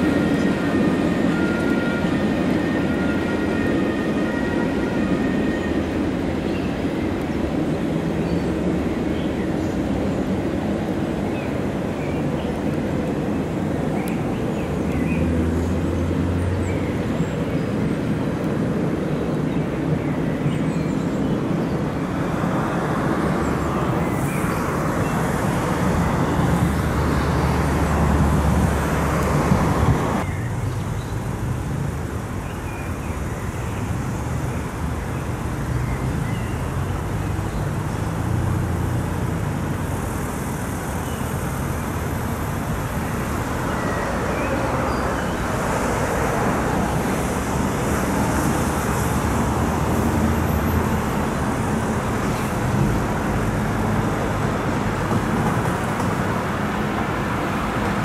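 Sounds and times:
electric locomotive rumble: 0.0 - 30.3
freight train rumble: 0.0 - 58.0.

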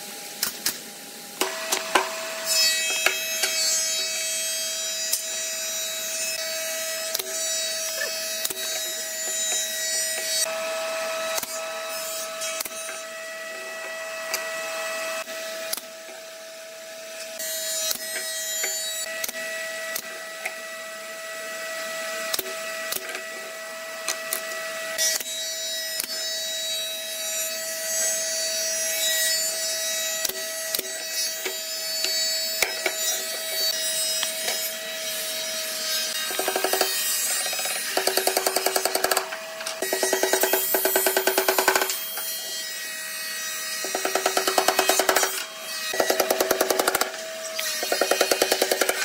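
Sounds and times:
nail gun firing: 37.9 - 42.0, 43.8 - 49.0.

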